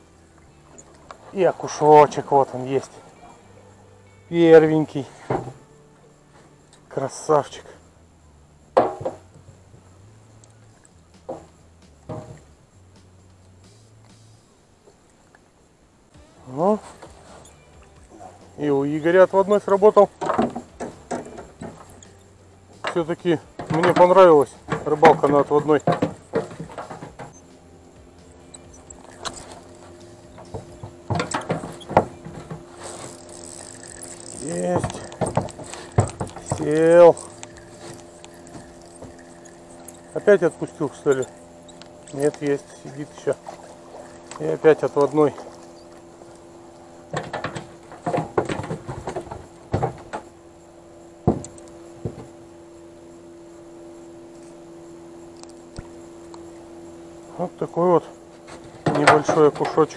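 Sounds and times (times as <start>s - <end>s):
faint steady hum: 0.0s - 59.9s
fishing reel squeaks: 16.2s - 47.1s, 52.7s - 58.4s.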